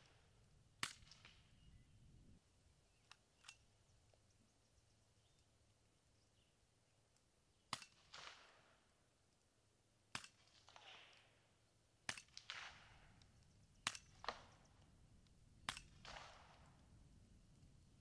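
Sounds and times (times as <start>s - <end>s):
suppressed rifle shots: 7.7s - 8.7s, 10.1s - 11.3s, 12.1s - 13.2s, 15.6s - 16.8s.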